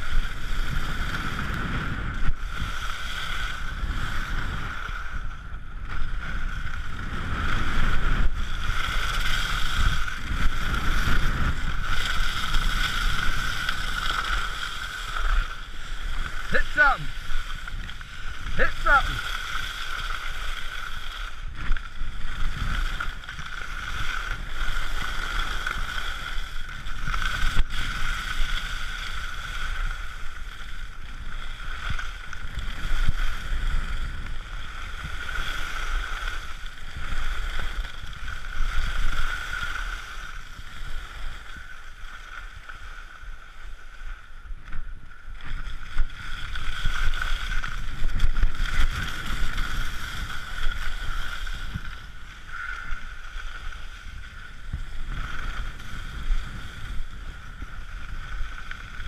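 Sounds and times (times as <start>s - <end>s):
skis scraping over snow: 0.0s - 59.0s
wind on microphone: 0.0s - 59.0s.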